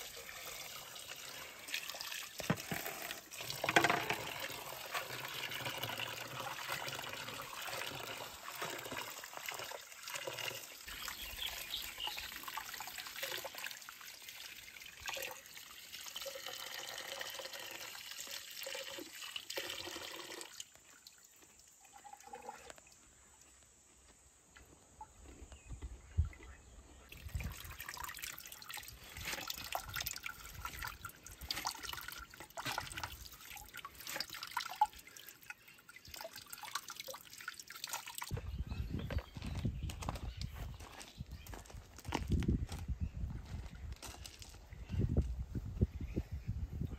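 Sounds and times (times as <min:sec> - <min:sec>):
water running from tap: 0:00.0 - 0:20.8
water splashing into bucket: 0:00.0 - 0:23.0, 0:27.1 - 0:38.5.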